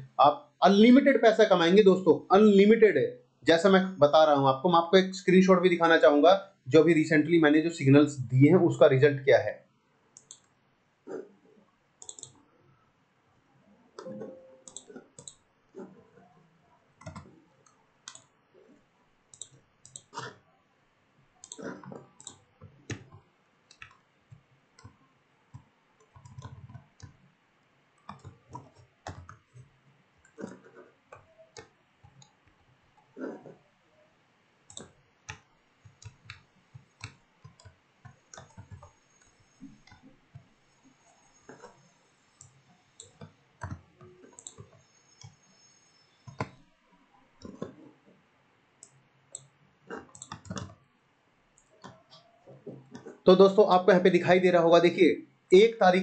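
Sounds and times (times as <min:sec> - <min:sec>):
keyboard clicks: 0:10.2 - 0:10.5, 0:12.0 - 0:12.4, 0:14.0 - 0:15.9, 0:17.0 - 0:18.3, 0:19.3 - 0:20.4, 0:21.4 - 0:27.2, 0:28.0 - 0:32.5, 0:34.7 - 0:40.5, 0:42.4 - 0:45.4, 0:46.2 - 0:46.6, 0:48.8 - 0:50.8
computer mouse clicks: 0:10.2 - 0:11.3, 0:12.0 - 0:12.4, 0:14.0 - 0:16.3, 0:17.0 - 0:18.3, 0:19.3 - 0:20.4, 0:21.4 - 0:27.2, 0:28.0 - 0:33.6, 0:34.7 - 0:46.6, 0:48.8 - 0:50.8.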